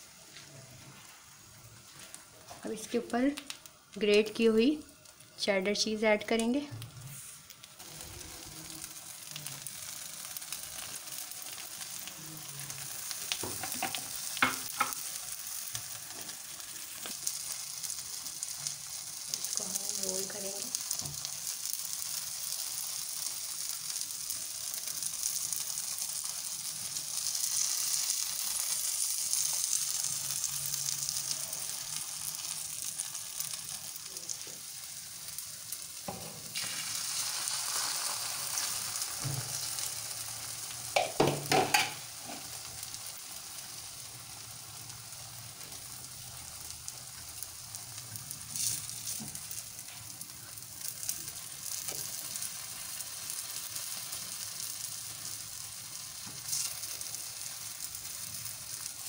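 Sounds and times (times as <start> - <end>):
egg sizzling in hot oil: 0.0 - 59.0.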